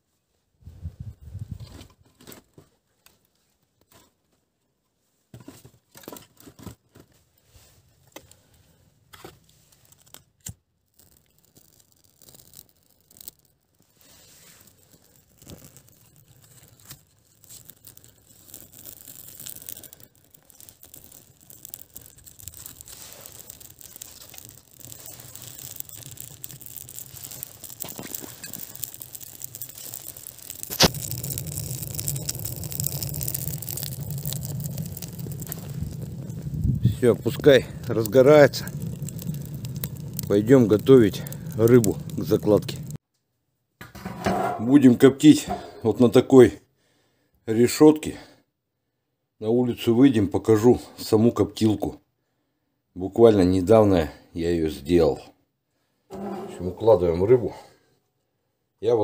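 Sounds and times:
fire crackling: 7.4 - 43.0, 56.1 - 57.8.

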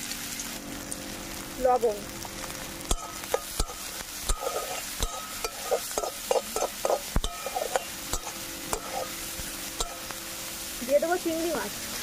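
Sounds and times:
onion sizzling in oil: 0.0 - 12.0
metal spatula knocking on pan: 2.9 - 9.1, 9.8 - 10.1
spatula scraping pan bottom: 2.9 - 10.1.

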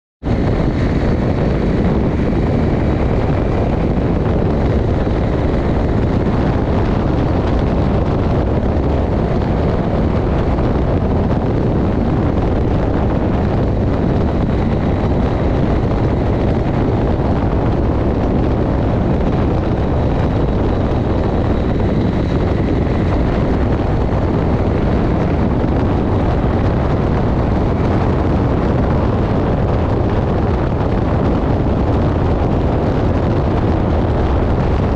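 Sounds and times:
motorcycle cruising: 0.2 - 34.9
wind rush on microphone: 0.2 - 34.9.

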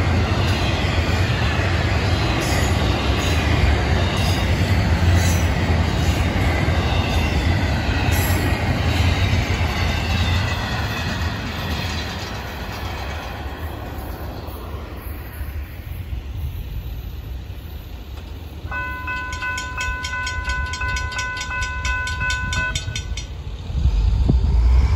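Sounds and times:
freight train wheels rumbling: 0.0 - 24.9
crossing warning bell ringing: 18.6 - 23.6.

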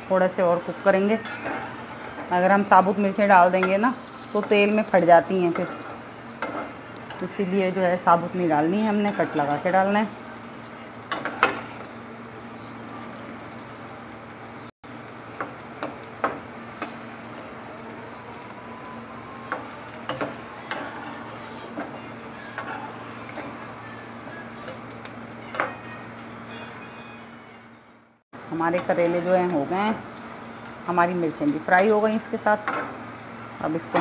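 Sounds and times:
vegetables sizzling in oil: 0.0 - 34.0
metal spatula scraping pan: 0.9 - 4.5, 5.4 - 7.2, 8.9 - 9.6, 20.1 - 23.6.

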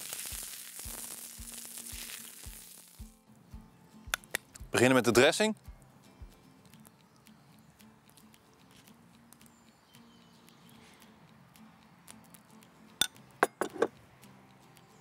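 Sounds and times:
metal spoon clinking ceramic bowl: 13.0 - 13.9.

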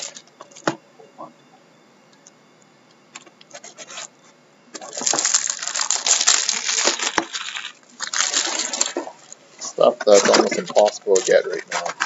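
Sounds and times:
shrink wrap crinkling and tearing: 0.0 - 0.2, 4.8 - 9.4.

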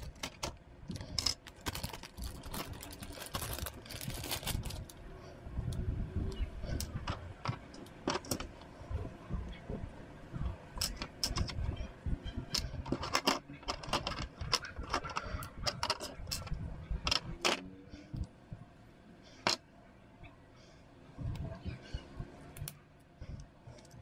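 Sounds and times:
hard plastic parts clicking: 0.0 - 4.9, 6.7 - 8.7, 12.5 - 17.6.

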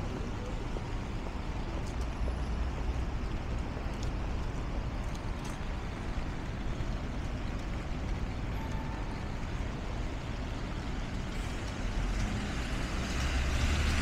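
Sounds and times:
rumble of passing cars and buses: 0.0 - 14.0
tyres hissing on wet road: 10.9 - 14.0.

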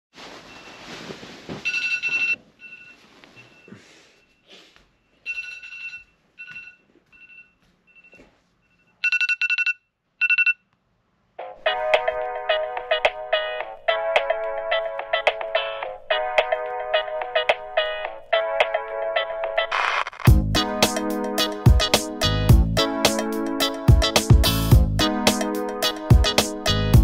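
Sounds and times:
music: 11.4 - 27.0.

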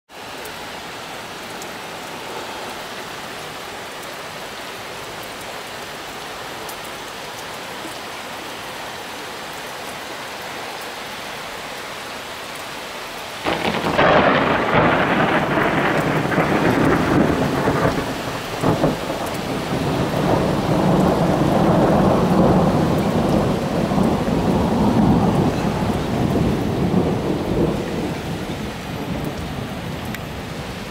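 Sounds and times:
rain hissing: 0.1 - 30.9
thunder clap and rumble: 13.4 - 30.7.

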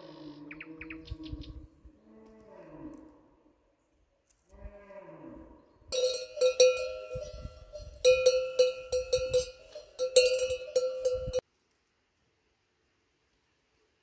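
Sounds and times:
cowbell clanking: 5.9 - 11.4.

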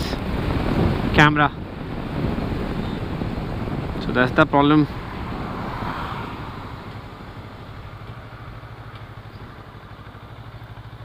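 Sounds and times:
wind and road noise: 0.0 - 11.0
motorcycle engine idling: 6.3 - 11.0.

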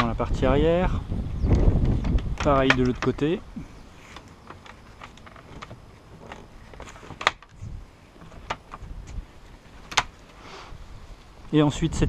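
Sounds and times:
wooden parts clicking and knocking: 1.5 - 10.3.

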